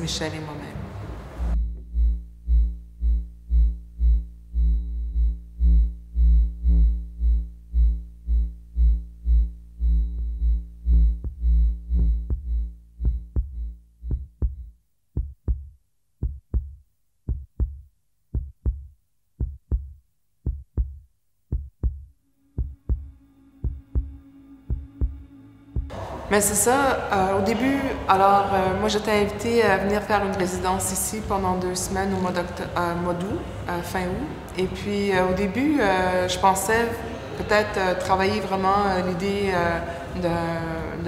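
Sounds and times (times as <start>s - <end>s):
deep low beat: 1.4s - 36.1s
sustained synthesizer chord: 22.2s - 30.6s.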